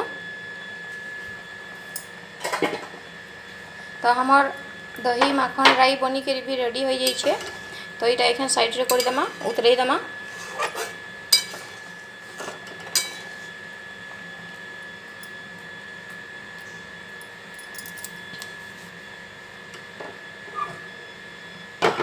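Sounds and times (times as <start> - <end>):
metal spatula scraping metal pan: 7.0 - 7.7, 8.8 - 13.3.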